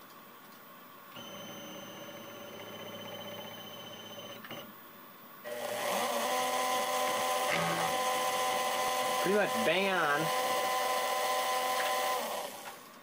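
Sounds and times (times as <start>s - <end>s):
router spindle running: 5.5s - 12.8s
stepper motors whining: 5.5s - 12.8s.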